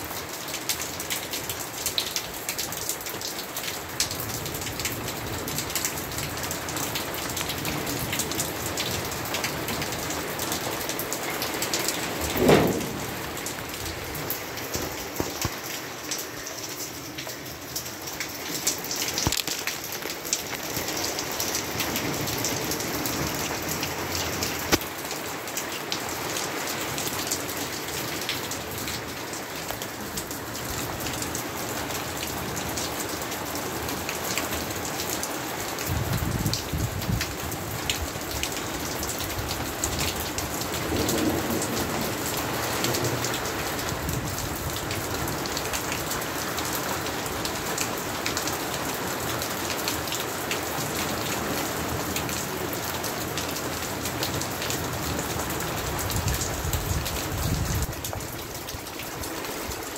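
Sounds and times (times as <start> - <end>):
rain pattering on surfaces: 0.0 - 59.9
distant thunder rumble: 12.1 - 15.4, 40.8 - 42.4.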